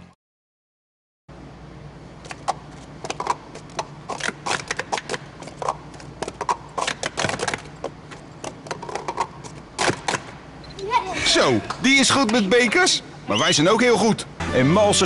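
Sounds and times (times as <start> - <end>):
steady low hum: 1.3 - 15.0.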